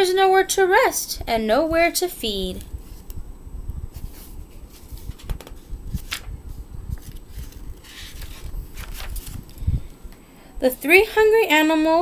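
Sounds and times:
page turning rustle: 3.9s - 9.6s.

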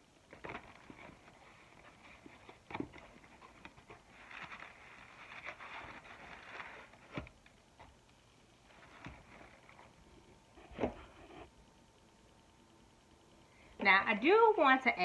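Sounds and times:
cardboard box rustling and crinkling: 0.3s - 7.4s.

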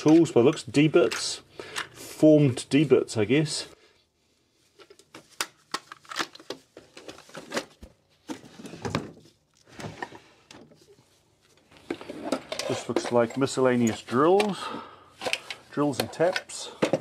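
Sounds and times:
metal tools clinking: 12.3s - 16.7s.

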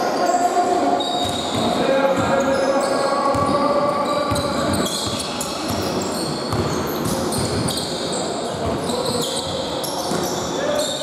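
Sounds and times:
shoes squeaking on floor: 0.0s - 11.0s
basketball bouncing: 3.3s - 3.6s, 4.3s - 7.8s.

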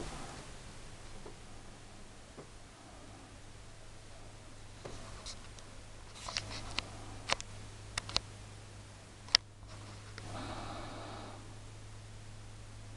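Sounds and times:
low steady hum: 0.0s - 12.9s
soft rustle: 4.2s - 7.5s, 9.6s - 10.9s.

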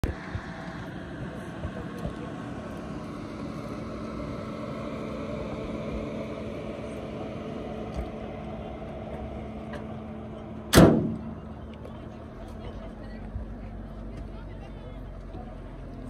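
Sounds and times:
car engine idling: 0.0s - 16.0s
loud thump: 10.7s - 11.3s.

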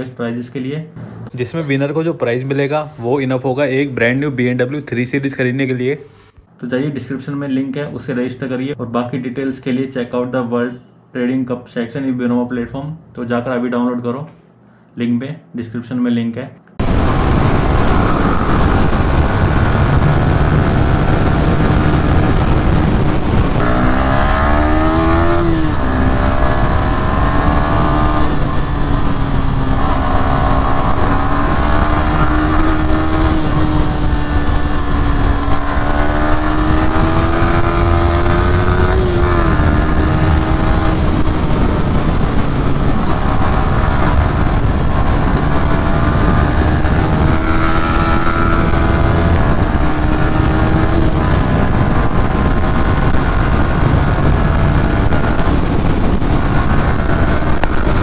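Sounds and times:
motorcycle engine revving: 16.8s - 58.0s
wind rushing: 16.8s - 58.0s.

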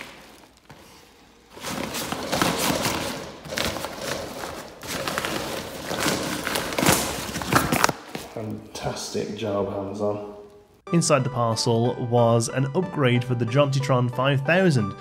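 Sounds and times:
paper mailer crinkling and scraping: 0.0s - 8.2s.

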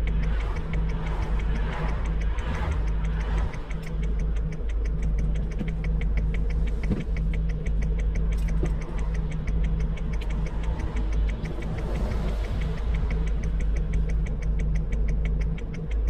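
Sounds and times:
engine idling: 0.0s - 16.0s
rapid even ticking: 0.0s - 16.0s.

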